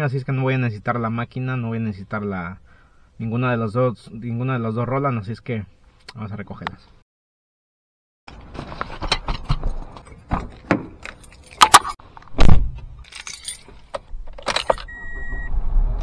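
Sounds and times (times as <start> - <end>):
keys jangling: 11.0 - 12.0, 13.0 - 14.9
car warning beep: 14.8 - 15.6.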